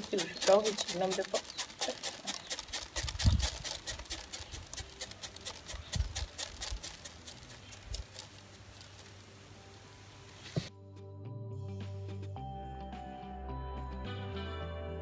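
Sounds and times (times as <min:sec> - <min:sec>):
grain rattling in basket: 0:00.0 - 0:10.7.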